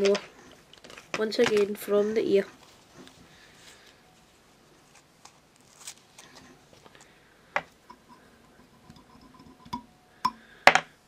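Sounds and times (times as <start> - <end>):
faint rustling: 0.0 - 7.3.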